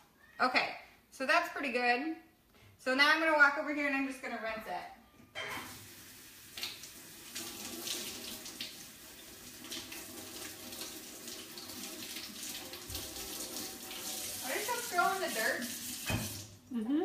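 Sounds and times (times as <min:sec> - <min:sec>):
faucet water running into sink: 0:05.6 - 0:16.6.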